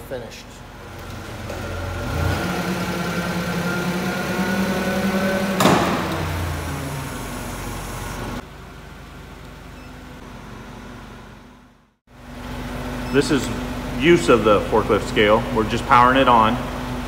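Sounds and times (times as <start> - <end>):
forklift humming and whining: 0.6 - 17.0
sharp clunk: 5.6 - 6.3.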